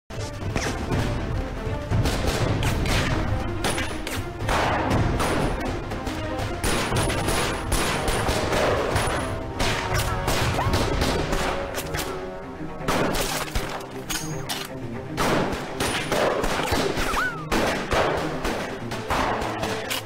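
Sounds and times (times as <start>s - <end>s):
background music: 0.1s - 20.0s
rapid gunfire: 1.9s - 3.8s, 6.6s - 11.7s, 15.2s - 19.7s.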